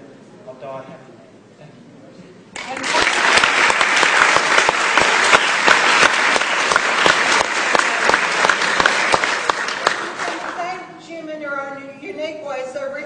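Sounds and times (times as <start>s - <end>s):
audience applauding: 2.6s - 10.7s.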